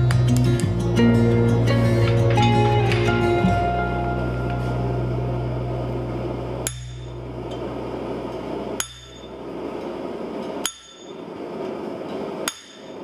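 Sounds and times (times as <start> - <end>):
hammer striking chisel on metal: 6.6 - 7.2, 8.8 - 9.3, 10.6 - 11.2, 12.4 - 13.0.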